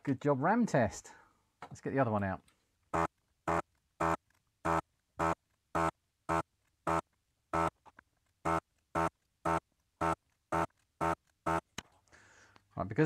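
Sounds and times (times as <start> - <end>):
desoldering pump buzzing: 2.9 - 7.8, 8.4 - 11.8.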